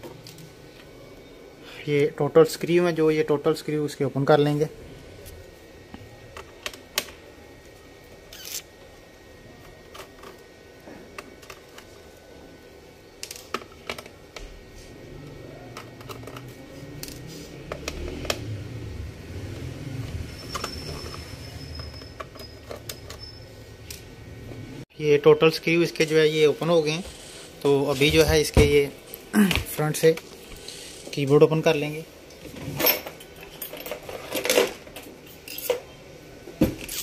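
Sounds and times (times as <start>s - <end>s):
faint high squeak: 20.3s - 23.6s.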